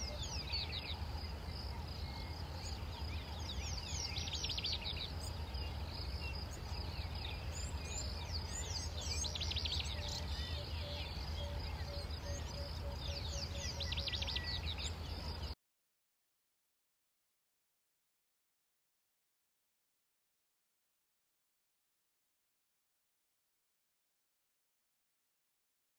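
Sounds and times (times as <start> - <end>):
steady low hum: 0.0 - 15.6.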